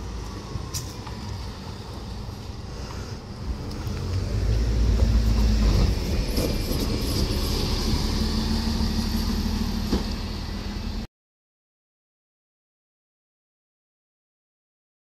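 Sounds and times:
bus engine rumble passing: 0.0 - 11.1.

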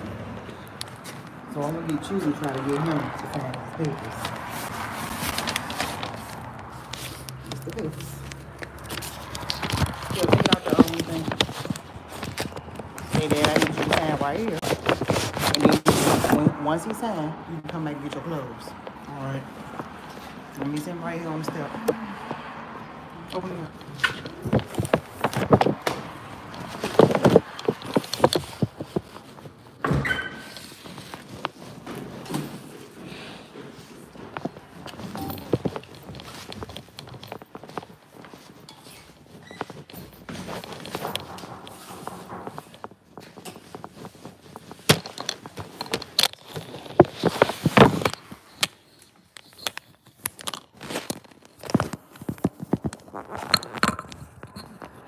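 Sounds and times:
footsteps: 0.0 - 17.0, 17.6 - 55.0
phone rubbing against jacket: 9.0 - 16.4
door squeak: 29.8 - 30.6, 38.7 - 39.7.

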